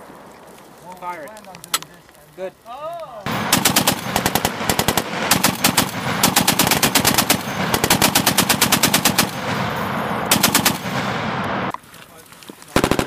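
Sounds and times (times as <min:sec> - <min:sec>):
heavy machine gun bursts: 0:03.3 - 0:11.2, 0:12.8 - 0:13.0.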